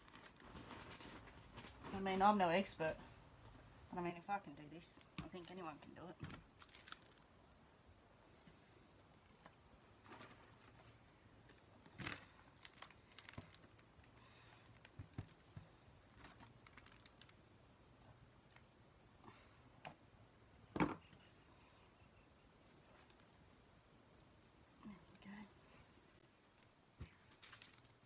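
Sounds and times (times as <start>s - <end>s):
hands rustling potting mix: 4.8s - 7.6s, 26.3s - 28.0s.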